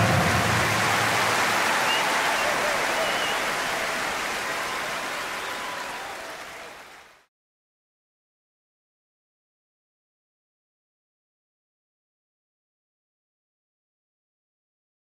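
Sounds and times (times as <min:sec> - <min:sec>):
crowd applauding: 0:00.0 - 0:07.3.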